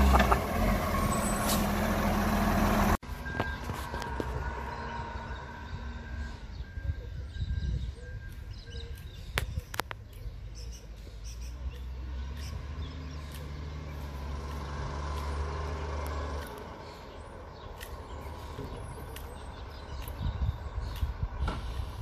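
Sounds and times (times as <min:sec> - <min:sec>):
distant truck engine rumbling: 0:00.0 - 0:07.2.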